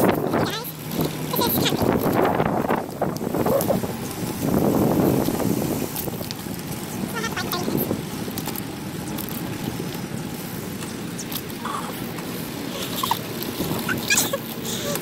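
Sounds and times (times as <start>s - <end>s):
wind rushing over microphone: 0.0s - 14.2s.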